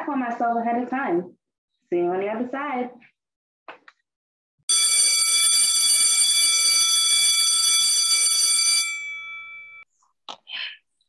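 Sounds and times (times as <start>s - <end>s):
electric school bell ringing: 4.7s - 9.8s.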